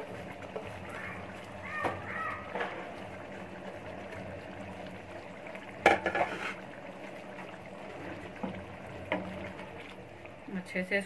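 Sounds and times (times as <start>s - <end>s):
clicks and knocks against pot: 5.8s - 6.6s.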